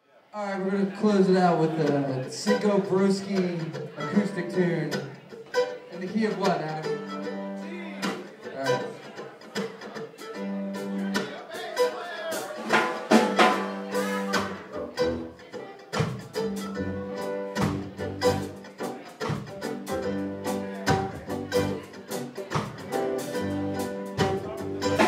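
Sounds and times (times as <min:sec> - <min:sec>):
acoustic guitars strumming: 0:00.6 - 0:25.0
held keyboard chords: 0:19.6 - 0:25.0.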